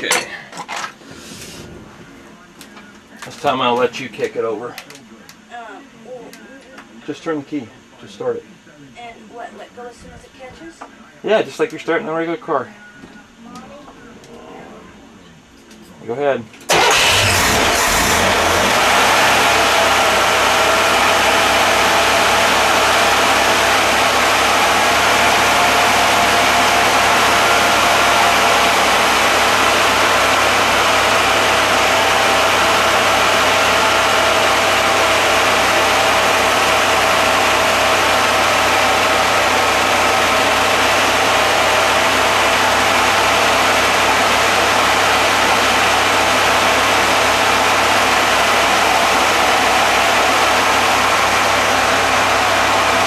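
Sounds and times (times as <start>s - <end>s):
steady whine: 0.0s - 53.0s
air-cooled engine running: 16.7s - 53.0s.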